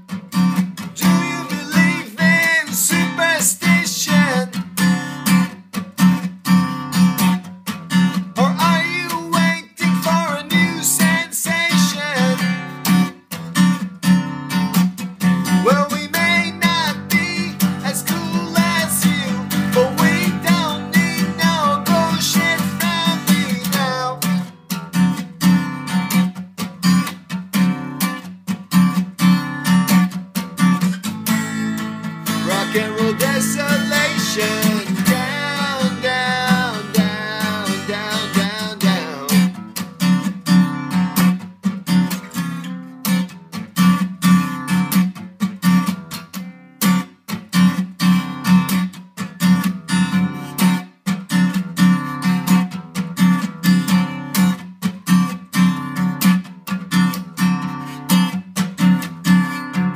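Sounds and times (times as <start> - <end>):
acoustic guitar strumming: 0.0 - 59.9
man singing: 1.0 - 5.1, 8.4 - 12.7, 15.5 - 24.5, 32.2 - 39.6.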